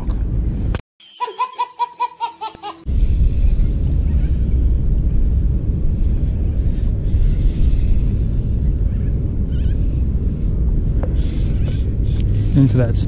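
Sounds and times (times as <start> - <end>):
low rumbling noise: 0.0 - 0.8, 2.8 - 13.0
baby laughing: 1.0 - 2.9.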